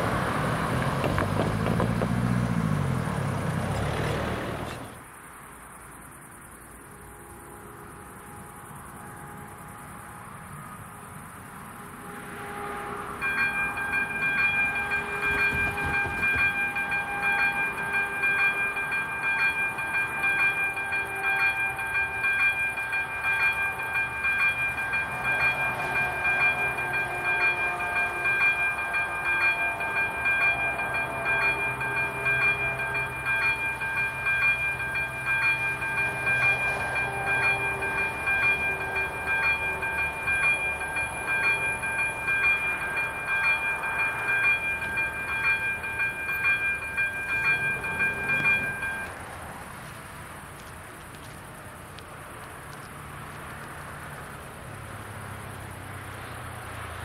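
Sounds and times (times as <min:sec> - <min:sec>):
level crossing warning bell: 0:12.0 - 0:49.5.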